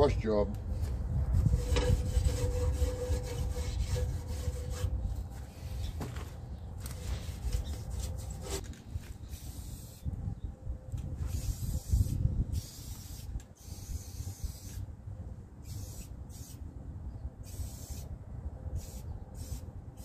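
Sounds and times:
wind rumble on microphone: 0.0s - 20.0s
spray paint hissing: 9.2s - 10.1s, 11.2s - 14.9s, 15.6s - 16.6s, 17.4s - 18.1s, 18.8s - 20.0s.

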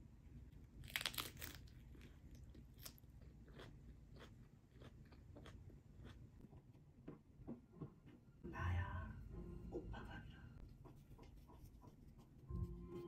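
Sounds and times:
crunchy lettuce bite: 0.8s - 6.2s
chewing crunches: 0.8s - 6.3s.

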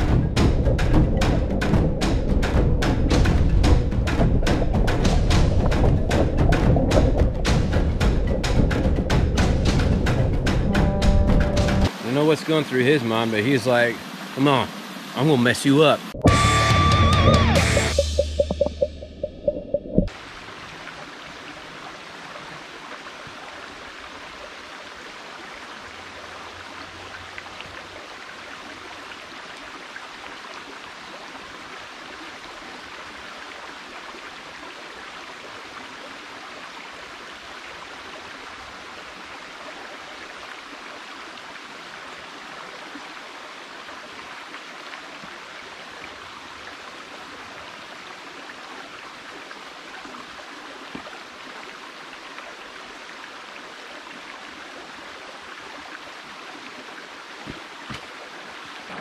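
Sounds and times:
creek babbling over stones: 11.8s - 16.0s, 20.1s - 59.0s.

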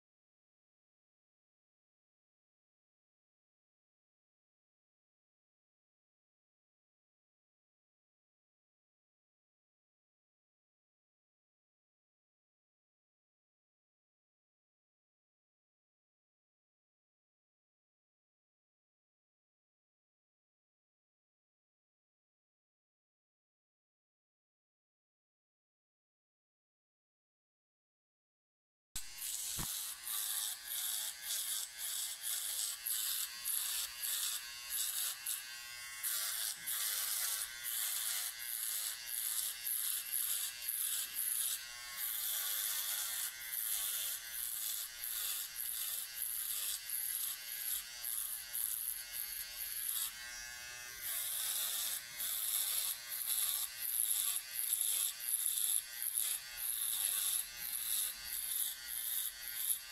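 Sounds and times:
electric shaver buzzing: 29.0s - 59.9s.

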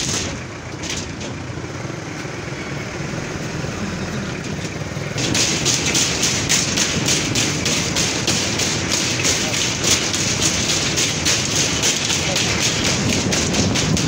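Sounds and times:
vehicle road and engine noise: 0.0s - 14.0s
hiss with rapid tapping: 5.2s - 14.0s.

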